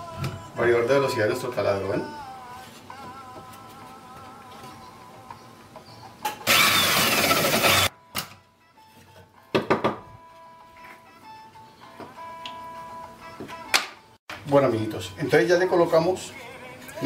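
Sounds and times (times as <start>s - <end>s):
quiet background music: 0.0s - 6.5s, 7.8s - 17.0s
drill boring through wood: 6.4s - 7.9s.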